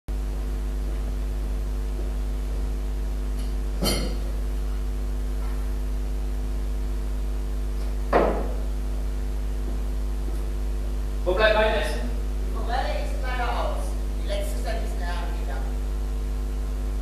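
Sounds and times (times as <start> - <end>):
electrical mains hum: 0.1 - 17.0
short clink: 3.8 - 4.2.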